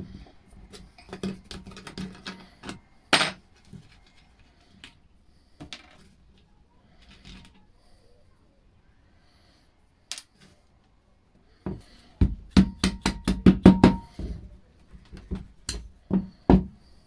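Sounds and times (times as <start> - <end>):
hammer striking plastic pipe: 11.7 - 14.4.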